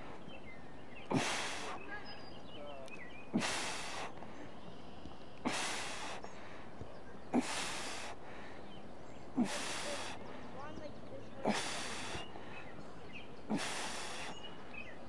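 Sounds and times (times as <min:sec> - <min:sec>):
man grunting and exhaling: 0:01.1 - 0:01.8, 0:07.3 - 0:08.2, 0:09.4 - 0:10.2, 0:11.4 - 0:12.2, 0:13.5 - 0:14.3.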